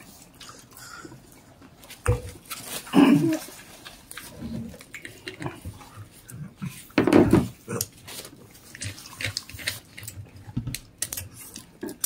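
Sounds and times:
chewing and mouth sounds: 0.0s - 12.0s.

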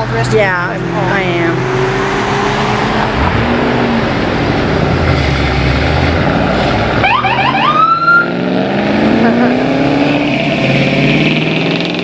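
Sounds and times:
car engines pulling away: 0.0s - 12.0s
police siren chirps and wail: 7.0s - 8.4s.

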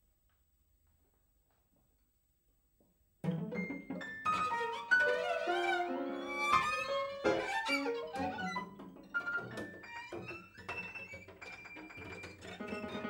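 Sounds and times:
violin cello and piano trio: 3.3s - 13.0s.

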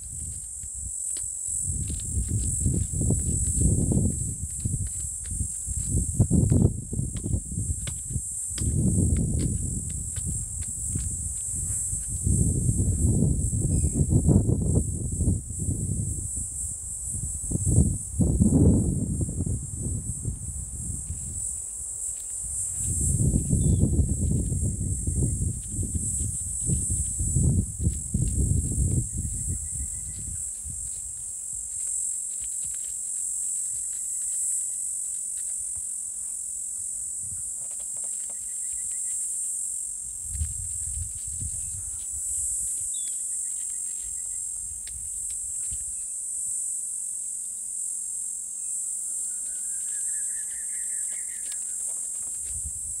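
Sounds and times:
high-pitched insect chorus: 0.0s - 53.0s
trilling bird calls: 49.2s - 51.9s.

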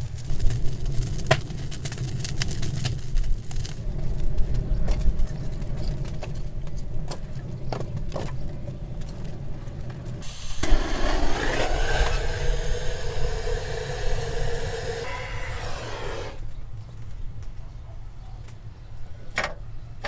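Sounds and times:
wind rumble on microphone: 0.0s - 15.1s
wood fire crackling: 0.0s - 17.0s
steady hissing drone: 10.1s - 16.4s.

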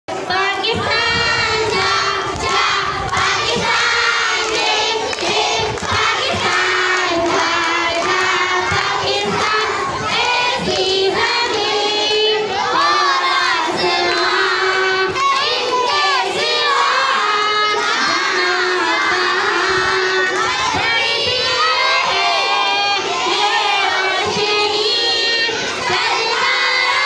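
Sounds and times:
children singing and shouting: 0.1s - 27.0s
girl singing into a microphone: 0.2s - 4.2s.

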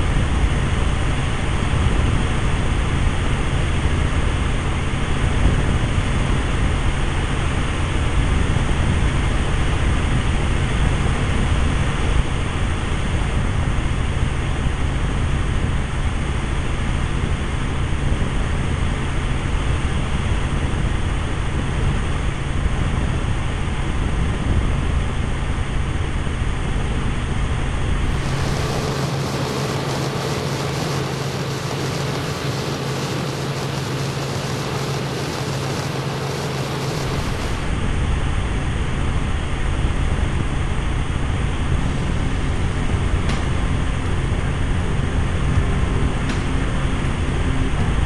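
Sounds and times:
helicopter engine and rotor drone: 0.0s - 48.0s
rushing noise: 27.6s - 48.0s.

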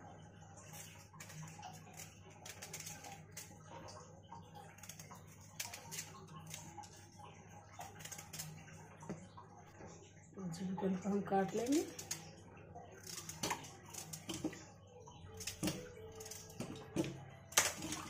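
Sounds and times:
knife scraping and clicking: 0.8s - 3.5s.

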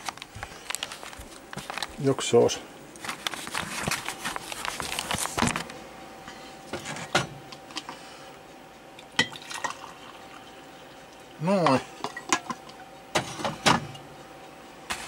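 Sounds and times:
glass carafe clinking: 9.2s - 10.0s
coffee pouring into a mug: 9.3s - 10.6s.

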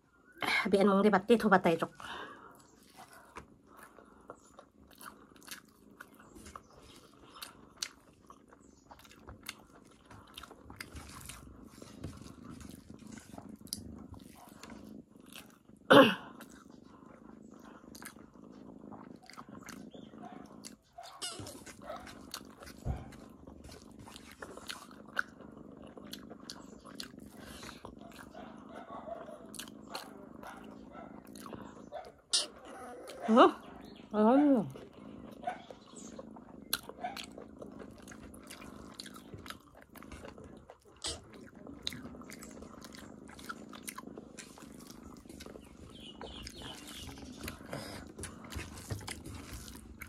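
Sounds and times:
low steady murmur: 0.1s - 50.0s
person chewing and smacking: 2.5s - 33.2s, 34.7s - 50.0s.

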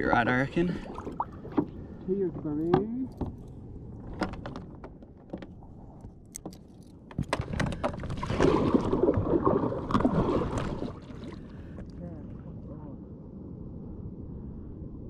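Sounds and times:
paddle splashing in water: 0.6s - 2.0s, 7.1s - 11.8s.

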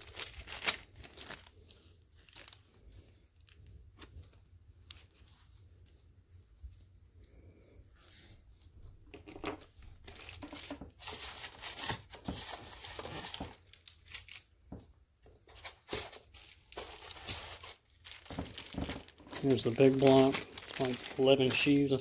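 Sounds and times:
plastic bags crinkling: 0.0s - 5.2s, 9.7s - 22.0s.

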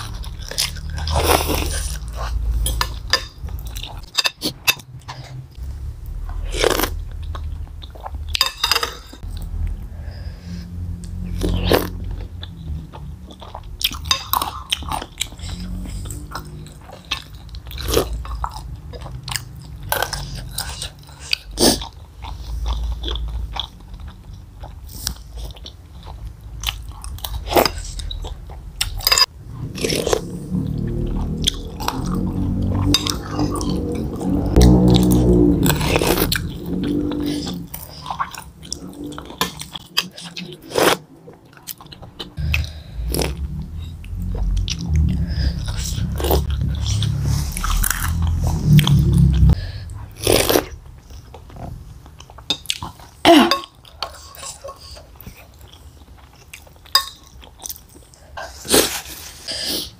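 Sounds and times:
chewing and slurping: 0.0s - 5.6s, 10.5s - 59.9s.

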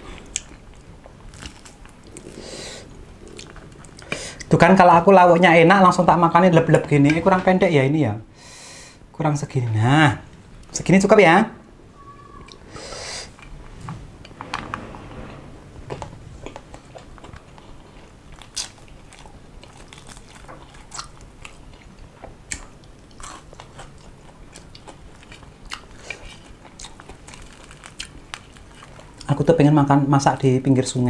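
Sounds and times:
chewing and crunching: 0.1s - 4.2s, 16.4s - 29.4s.

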